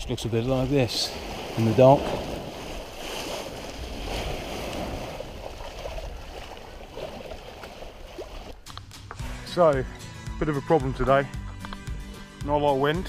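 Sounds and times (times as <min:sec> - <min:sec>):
water washing along hull: 0:00.0 - 0:08.6.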